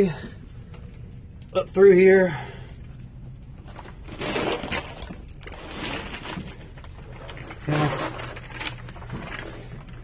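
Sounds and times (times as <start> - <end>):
rustling over plastic sheeting: 3.6 - 10.0.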